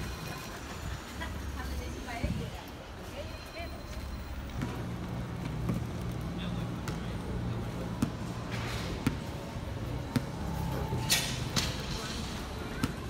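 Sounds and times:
basketball bouncing on pavement: 4.5 - 6.2, 6.8 - 10.7, 12.6 - 13.0.

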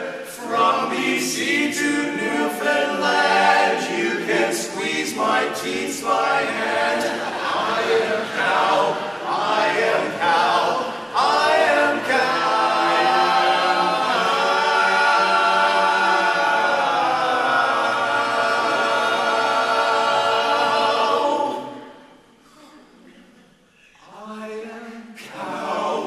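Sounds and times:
men singing a cappella harmony: 0.0 - 21.8, 24.0 - 26.0.

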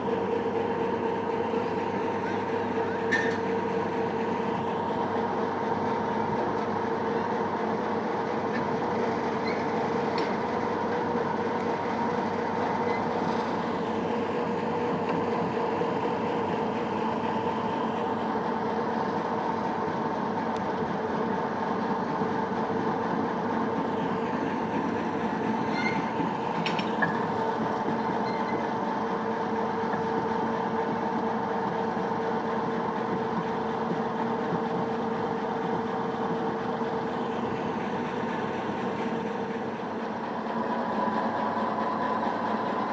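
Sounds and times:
railway turntable mechanical hum: 0.0 - 42.9.

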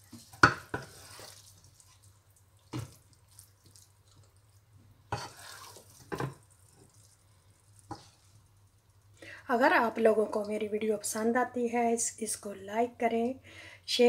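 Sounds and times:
spatula scraping a pot: 0.0 - 1.6, 5.1 - 6.4, 7.9 - 8.4.

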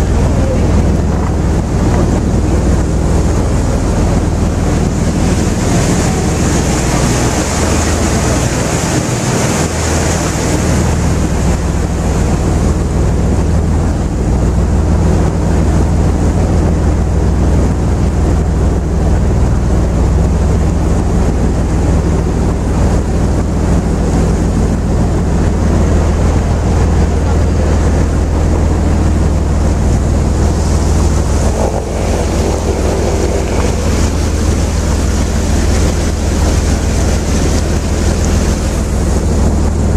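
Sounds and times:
water rushing along hull: 0.0 - 39.9
wind buffeting microphone: 0.0 - 39.9
diesel engine humming: 26.0 - 39.9.

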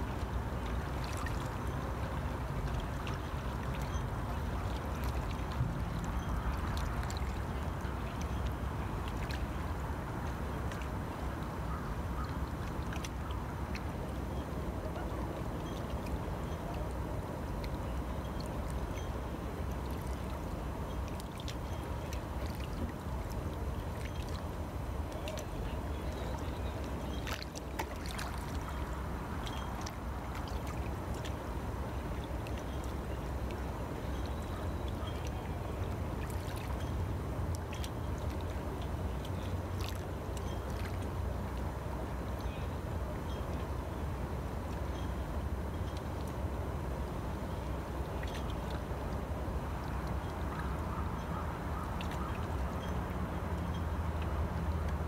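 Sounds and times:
small splashes: 0.0 - 8.4, 21.1 - 31.4, 32.0 - 41.2
water lapping against rocks: 21.1 - 31.4.

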